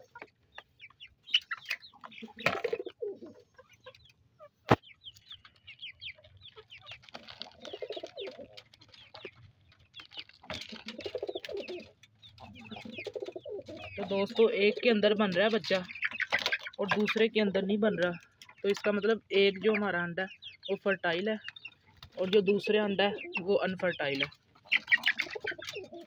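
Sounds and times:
cage birds chirping: 0.0s - 26.0s
hens clucking: 0.0s - 26.0s
pigeons cooing: 1.3s - 4.6s, 6.4s - 17.2s, 21.9s - 26.0s.

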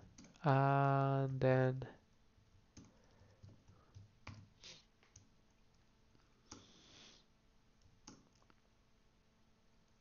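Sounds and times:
keyboard keystrokes: 7.8s - 8.6s.

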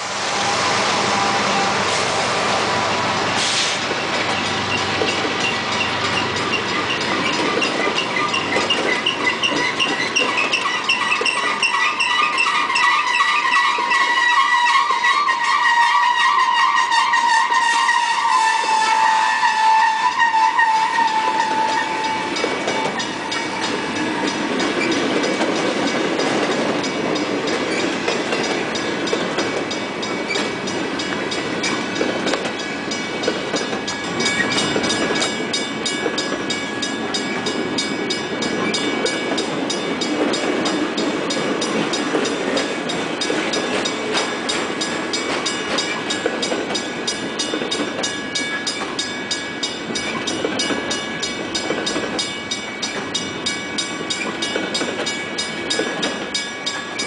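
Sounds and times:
freight train wheels rumbling: 0.0s - 57.0s
wheels squealing: 2.8s - 15.9s
crossing bell ringing: 4.0s - 15.8s, 20.0s - 57.0s.

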